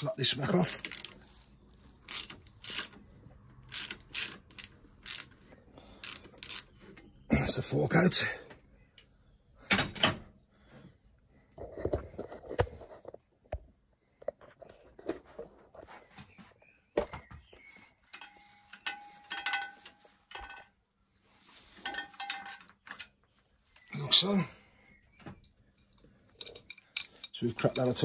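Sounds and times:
metal knocks and clicks: 0:18.1 - 0:20.8.

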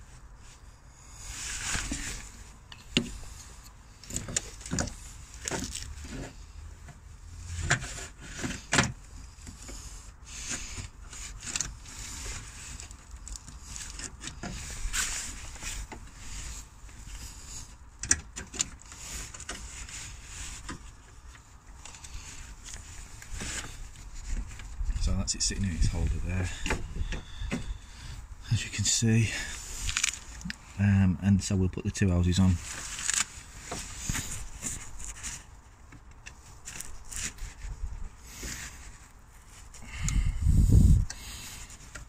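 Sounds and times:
hands working in engine bay: 0:00.1 - 0:30.7, 0:32.5 - 0:42.0.

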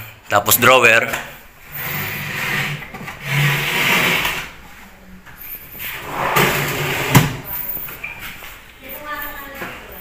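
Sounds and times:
drawer sliding on runners: 0:05.9 - 0:07.5.

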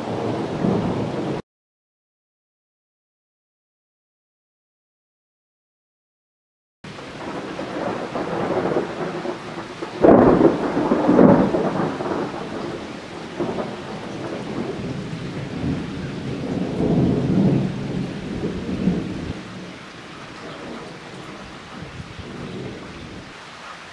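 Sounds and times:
rain falling: 0:00.0 - 0:01.4, 0:06.9 - 0:23.9
thunder rumbling: 0:00.0 - 0:01.4, 0:06.9 - 0:23.3
loud thunder clap: 0:07.2 - 0:19.7.

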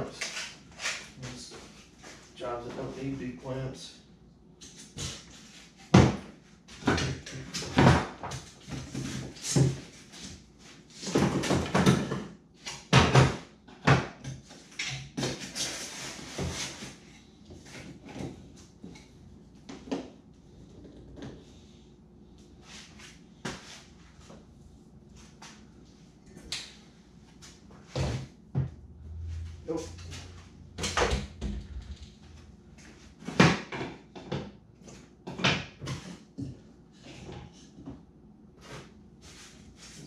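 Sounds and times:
scraping sounds: 0:29.0 - 0:33.2.

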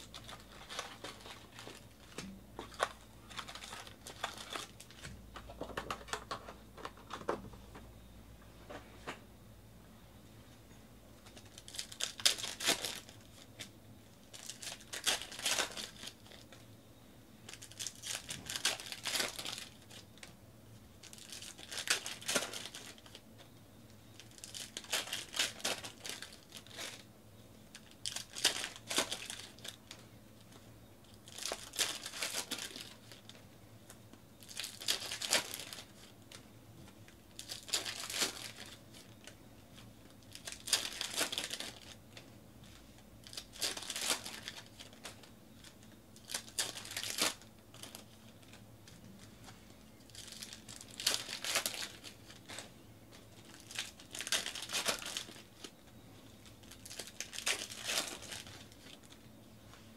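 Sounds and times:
card pack wrappers tearing and crinkling: 0:00.0 - 0:05.1, 0:11.3 - 0:16.5, 0:17.5 - 0:20.3, 0:21.0 - 0:23.2, 0:24.2 - 0:27.1, 0:27.7 - 0:33.4, 0:34.4 - 0:36.4, 0:37.1 - 0:49.0, 0:50.0 - 0:59.2.

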